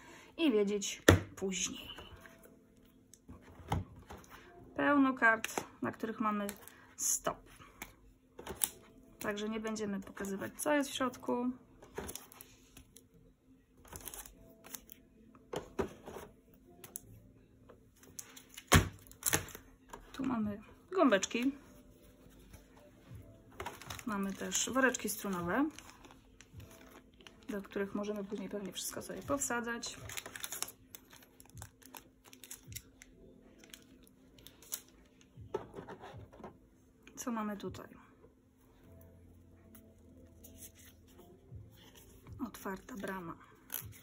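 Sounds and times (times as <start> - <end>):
cards rustling and clicking: 23.5 - 36.4, 40.4 - 41.2.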